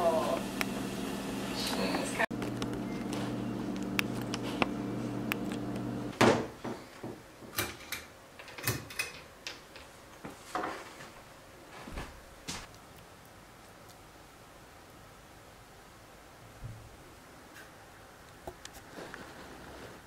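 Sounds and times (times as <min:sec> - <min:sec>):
cabinet doors and drawers knocking: 0:06.1 - 0:07.8.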